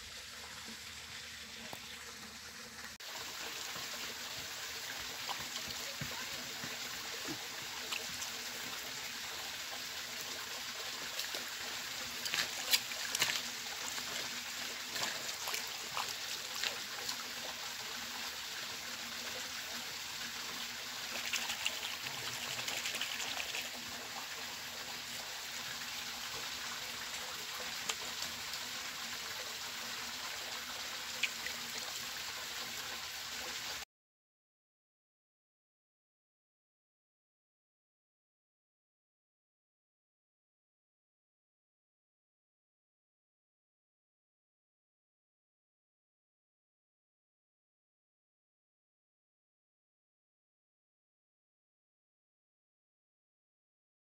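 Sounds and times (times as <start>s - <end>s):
water trickling along a furrow: 0.0s - 33.8s.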